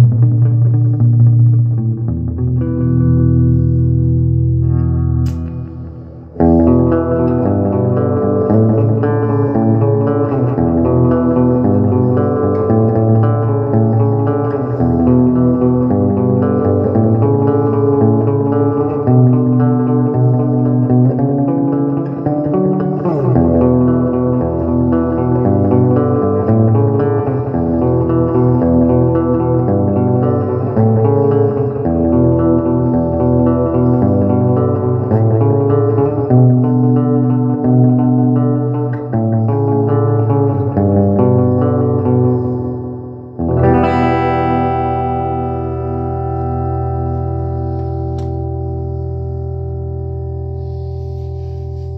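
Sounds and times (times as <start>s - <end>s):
electric guitar chords: 0.0s - 51.9s
low bass line: 0.0s - 51.9s
bent guitar note: 4.5s - 18.0s, 43.5s - 51.9s.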